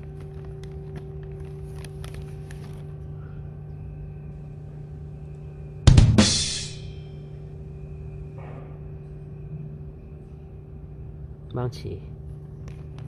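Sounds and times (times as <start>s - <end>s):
steady low hum: 0.0s - 13.0s
sharp drum strikes: 5.9s - 7.0s
cymbal crash: 5.9s - 7.1s.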